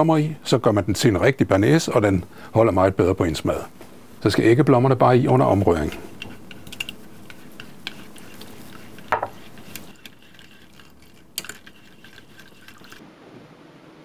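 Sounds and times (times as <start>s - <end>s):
whisk swishing liquid: 5.7s - 13.0s
whisk clinking against pan: 6.2s - 13.0s.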